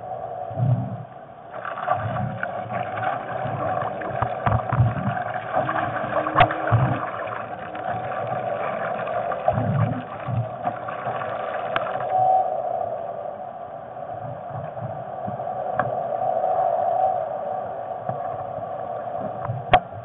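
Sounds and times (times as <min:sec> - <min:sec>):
steady hum: 0:00.0 - 0:20.0
water rushing along boat: 0:01.5 - 0:12.8.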